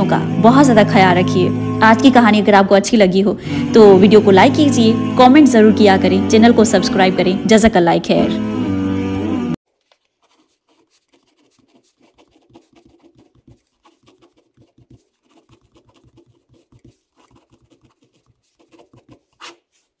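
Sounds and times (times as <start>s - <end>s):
pen scratching on paper: 9.8s - 20.0s.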